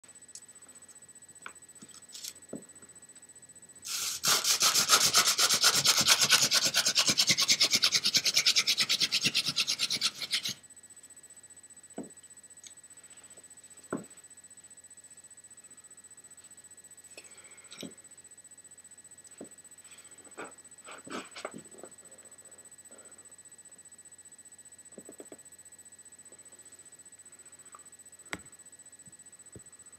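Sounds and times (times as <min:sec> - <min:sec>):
wooden spindle rasping on board: 0:03.9 - 0:10.6.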